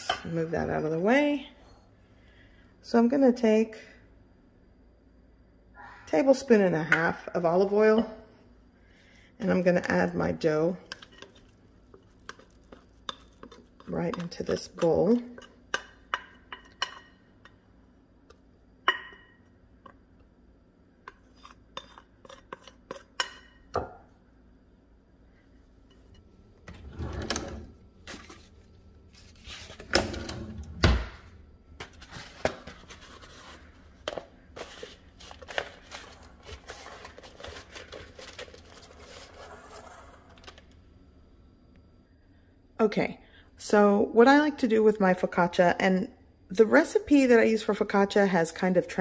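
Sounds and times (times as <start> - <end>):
drawer sliding and shutting: 26.6 - 28.4, 29.7 - 31.2
food wrap crinkling: 31.8 - 40.7.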